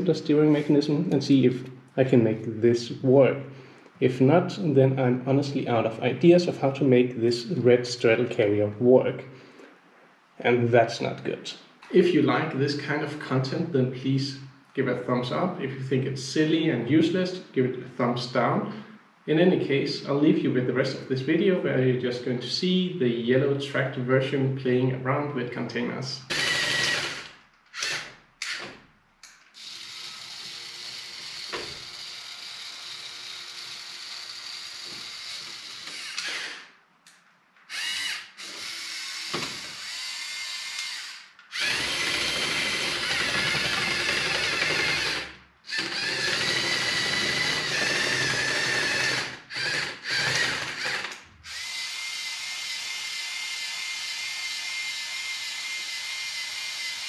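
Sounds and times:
small electric motors whirring: 26.3s - 28.8s, 29.6s - 36.7s, 37.7s - 57.0s.

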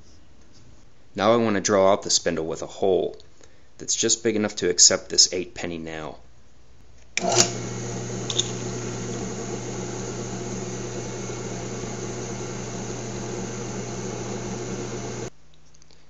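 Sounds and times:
drill press drilling metal: 7.2s - 15.3s.

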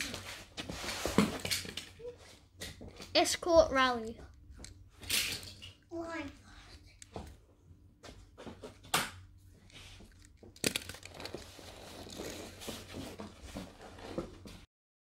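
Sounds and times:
scraping and small clicks: 9.6s - 12.5s.

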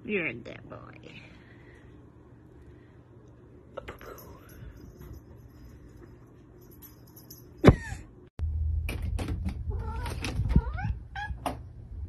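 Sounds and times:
steady low hum: 0.0s - 9.6s.

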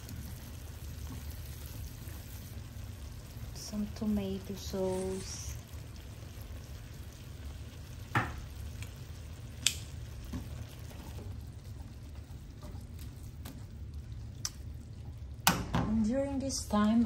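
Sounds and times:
low steady hum: 0.0s - 17.0s
sauce sizzling faintly: 0.0s - 17.0s
plastic tongs clicking on pan: 9.6s - 9.9s.

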